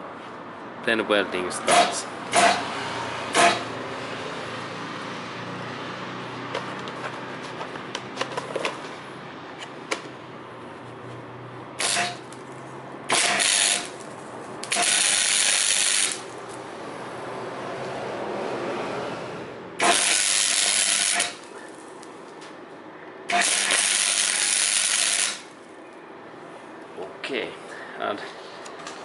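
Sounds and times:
welder arc hissing: 11.8s - 12.2s, 13.1s - 14.0s, 14.6s - 16.3s, 19.8s - 21.8s, 23.3s - 25.5s.

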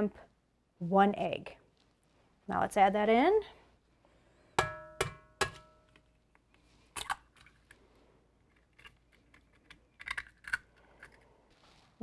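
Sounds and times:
egg knocking on metal bowl: 4.6s - 5.8s
eggshell cracking: 8.5s - 11.2s.

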